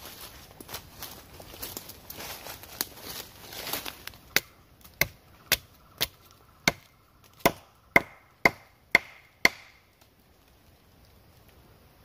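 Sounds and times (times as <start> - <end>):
sharp knocks on wood: 7.4 - 9.8.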